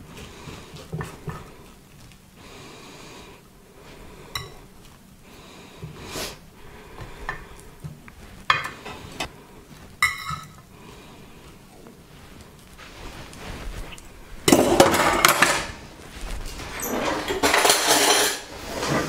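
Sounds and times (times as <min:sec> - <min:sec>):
knife swishing scrape: 0:12.0 - 0:14.5
cutlery clinking against plate: 0:16.8 - 0:18.5.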